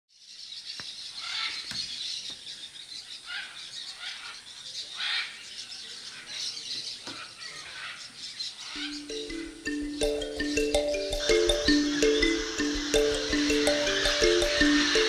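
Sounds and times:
parrots calling: 7.2 - 15.0.

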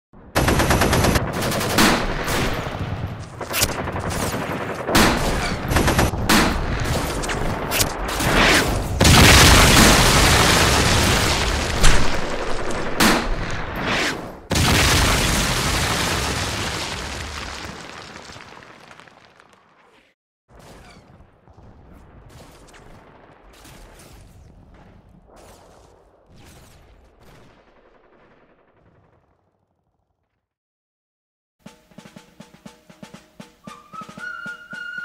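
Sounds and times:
machine-gun and rifle fire: 0.4 - 16.1.

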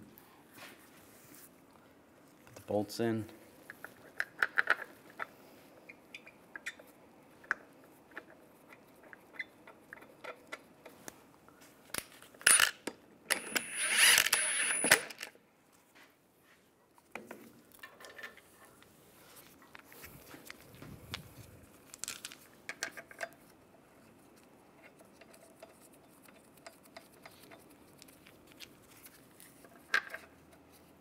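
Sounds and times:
impact wrench whining: 13.3 - 15.3.

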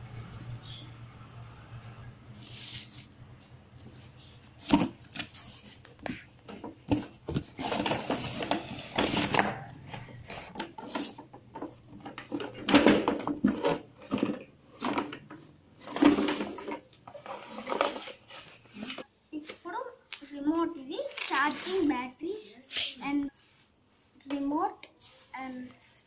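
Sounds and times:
cardboard packaging rubbing and scraping: 2.4 - 3.1, 4.0 - 6.3, 6.9 - 11.3, 15.8 - 19.0, 21.0 - 22.1.

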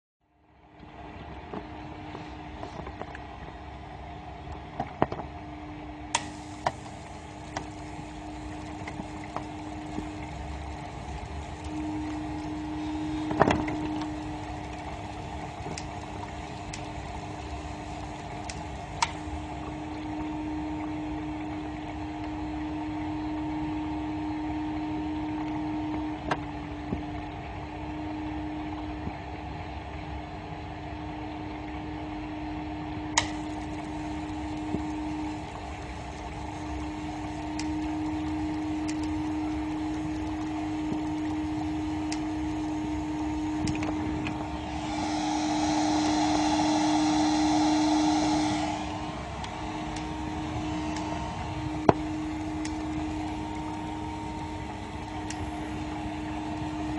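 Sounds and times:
small electric motor humming: 6.2 - 21.3, 33.2 - 56.9.

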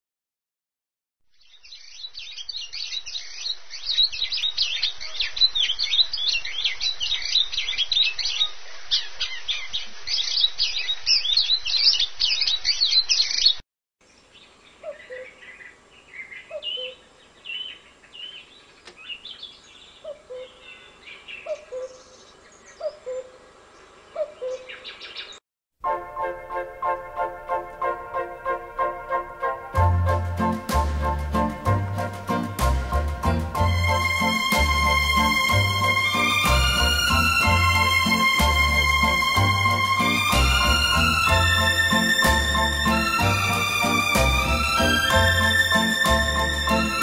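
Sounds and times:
dense songbird chorus: 1.4 - 25.4
scattered high bird chirps: 14.8 - 23.3.

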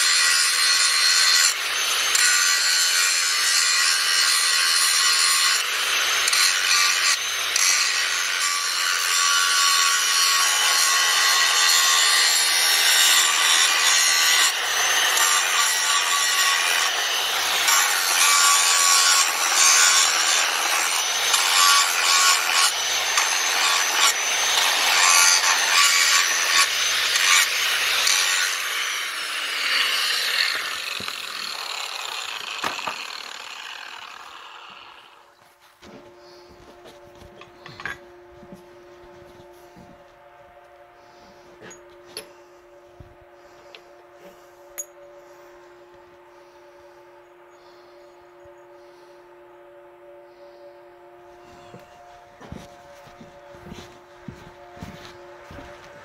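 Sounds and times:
grinder winding down: 0.0 - 35.4
angle grinder grinding: 0.0 - 38.6.

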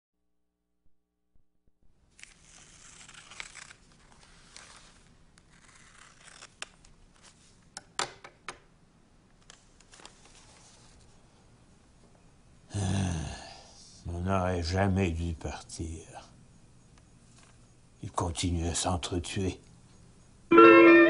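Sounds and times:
rustling and scraping: 9.9 - 11.2.

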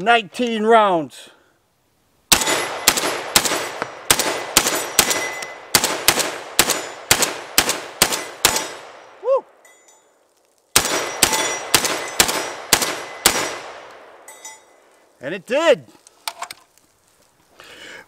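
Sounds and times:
shotgun shots with echo: 2.3 - 9.0, 10.8 - 13.9.

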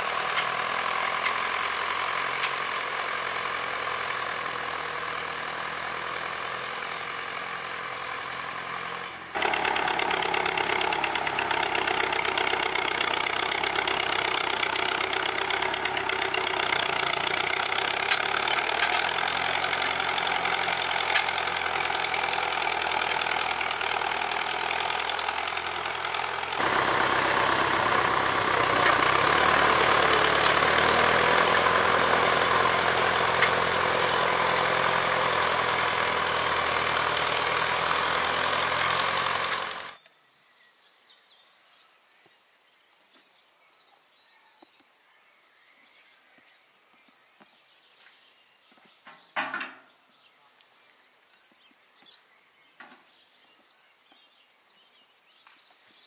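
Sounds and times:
tractor engine running under load: 0.0 - 40.0.

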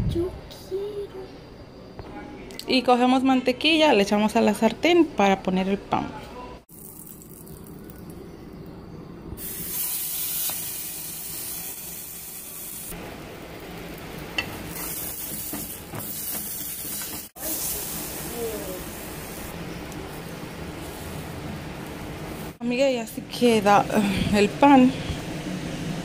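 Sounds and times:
bread sizzling in a frying pan: 9.4 - 22.6.

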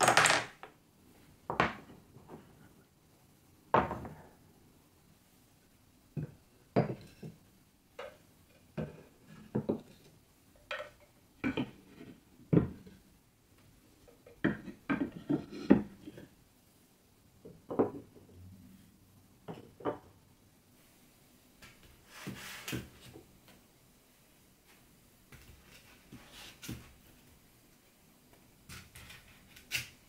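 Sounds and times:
wooden blocks clacking: 0.0 - 0.7.

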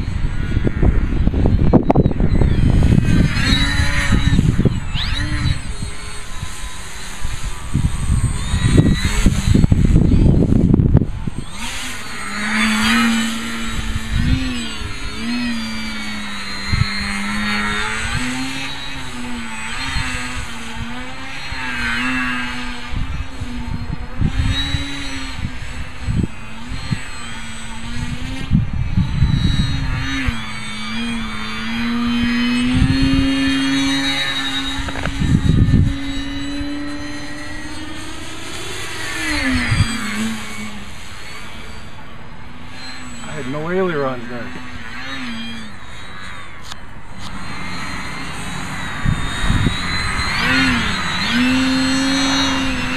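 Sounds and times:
wind gusts thumping microphone: 0.0 - 41.7, 47.0 - 52.9
model plane motor buzzing whine: 0.0 - 52.9.

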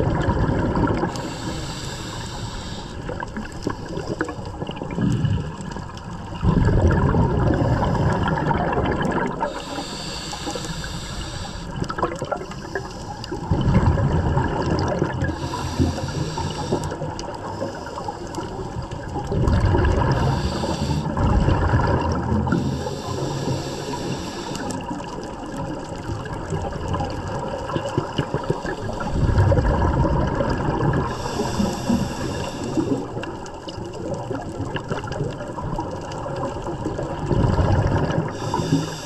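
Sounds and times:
exhaled bubbles rumbling: 0.0 - 39.0
scuba regulator breathing: 1.0 - 4.6, 7.4 - 8.8, 9.4 - 13.5, 15.2 - 18.8, 19.9 - 21.4, 22.4 - 25.2, 28.2 - 29.8, 30.7 - 33.4, 38.3 - 39.0.

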